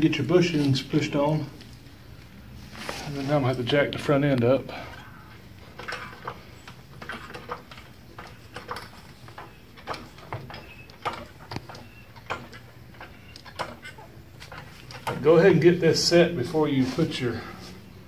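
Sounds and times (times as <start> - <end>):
light metal knocks and clicks: 5.7 - 15.4.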